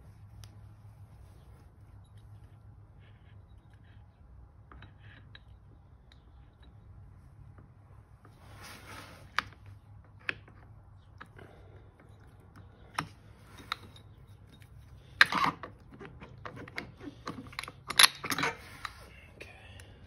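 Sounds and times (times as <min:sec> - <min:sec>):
metal parts clicking and clinking: 0:12.0 - 0:19.0
metal parts clattering: 0:16.5 - 0:19.0.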